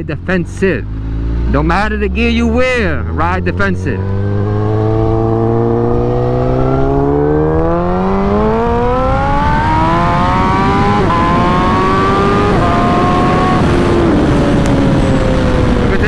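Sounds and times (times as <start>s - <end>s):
motorcycle engine accelerating: 0.0s - 16.0s.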